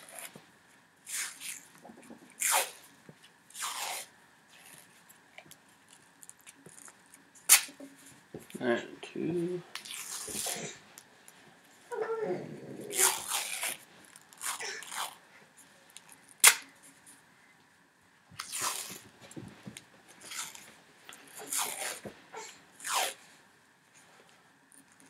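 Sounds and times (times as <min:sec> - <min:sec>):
sharp crack: 0:07.5 - 0:07.8, 0:16.4 - 0:16.7.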